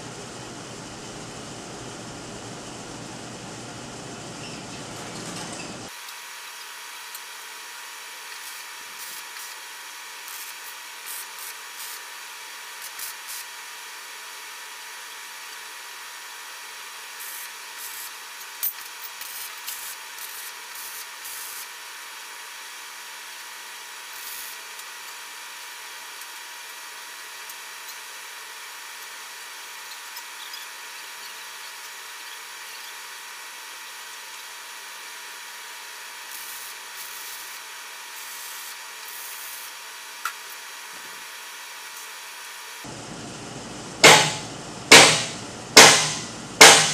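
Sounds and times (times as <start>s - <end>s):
welding arc crackle: 5.9s - 13.6s, 17.1s - 21.9s, 23.9s - 28.1s, 36.2s - 43.4s.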